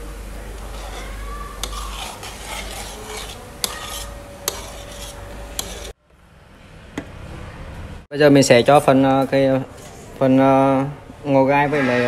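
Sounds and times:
ladle stirring in metal pan: 0:00.6 - 0:06.0.

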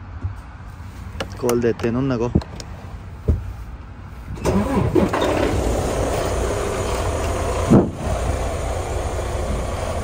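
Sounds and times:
diesel truck engine idling: 0:03.5 - 0:10.0.

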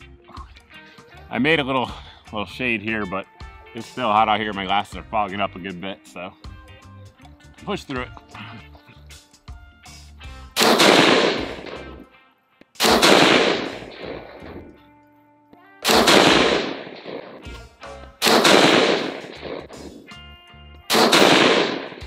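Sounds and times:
rifle shots with echo: 0:10.6 - 0:12.0, 0:12.8 - 0:14.8, 0:15.8 - 0:17.5, 0:18.2 - 0:20.1, 0:20.9 - 0:22.0.

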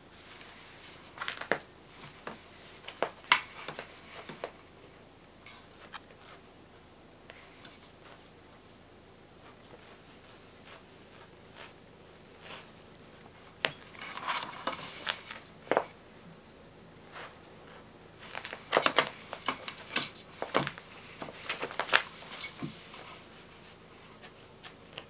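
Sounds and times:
cat scratching and rustling toy: 0:09.4 - 0:16.0, 0:17.0 - 0:25.0.

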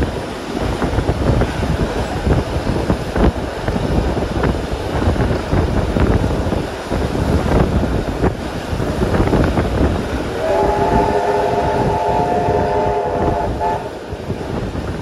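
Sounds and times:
train rumbling: 0:00.0 - 0:15.0
steam locomotive whistle blast: 0:10.3 - 0:14.1.

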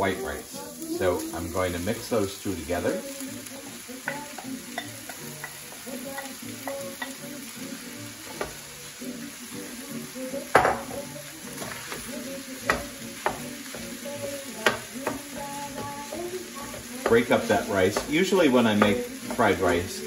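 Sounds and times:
food sizzling in oil: 0:00.0 - 0:20.0
spoon clicking on skillet: 0:04.0 - 0:07.2, 0:11.6 - 0:16.2
spoon knocking: 0:10.5 - 0:11.0.

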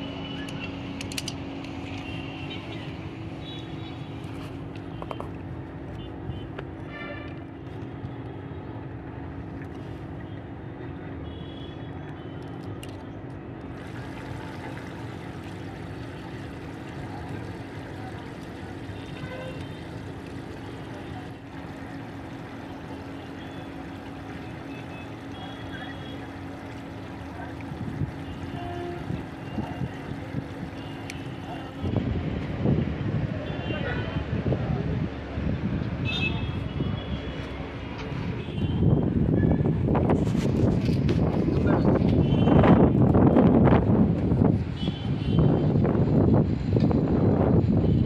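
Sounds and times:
faint clicks of tools and plastic: 0:00.4 - 0:02.1, 0:12.4 - 0:13.7.

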